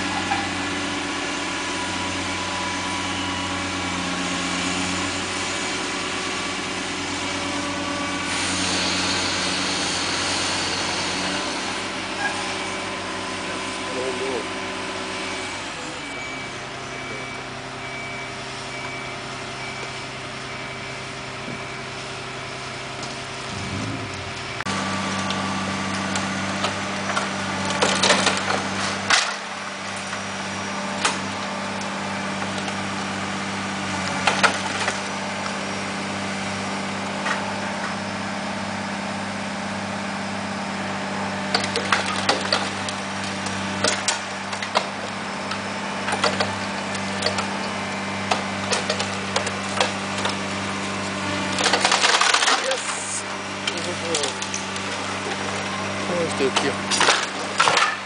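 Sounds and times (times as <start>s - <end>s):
excavator diesel engine running: 0.0s - 58.0s
timber and brickwork crashing: 26.1s - 29.5s, 41.5s - 45.1s, 46.0s - 50.6s, 51.4s - 58.0s.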